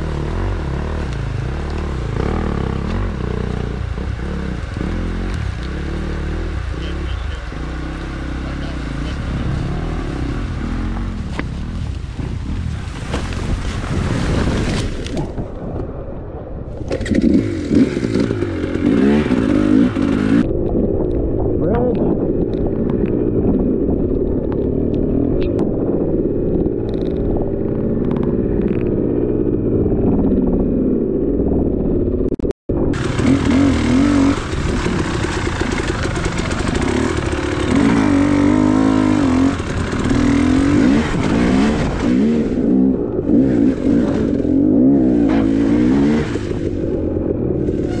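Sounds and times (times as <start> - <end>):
motorcycle engine revving: 0.0 - 12.0, 16.9 - 20.5, 32.9 - 48.0.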